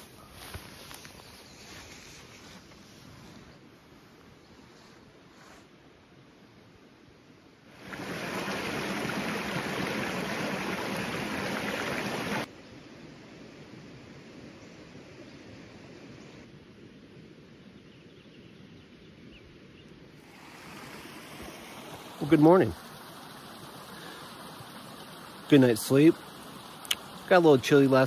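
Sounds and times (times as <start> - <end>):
creek water rushing: 7.7 - 12.5, 20.2 - 28.0.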